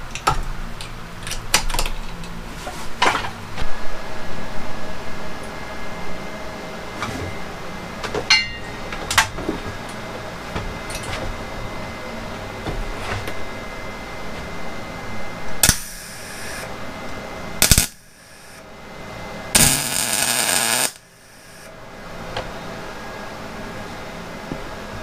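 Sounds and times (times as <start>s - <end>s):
steady hum: 0.0s - 25.0s
crackling welding arc: 15.6s - 16.7s, 17.6s - 18.6s, 19.5s - 21.7s
welding torch clicks and clatter: 15.6s - 16.7s, 17.6s - 18.6s, 19.6s - 21.7s.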